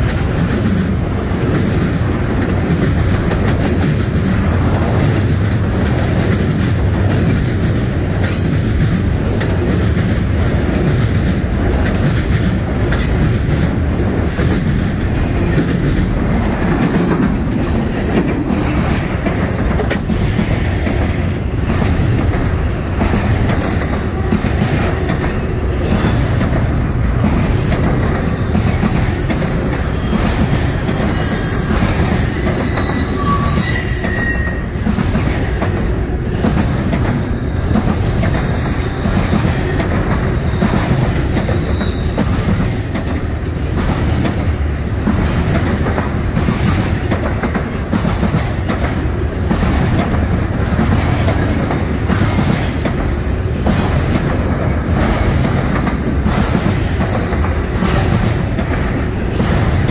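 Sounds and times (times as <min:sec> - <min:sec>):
freight train wheels rumbling: 0:00.0 - 0:59.9
high-pitched wheel squeals: 0:29.2 - 0:34.7, 0:41.2 - 0:43.6.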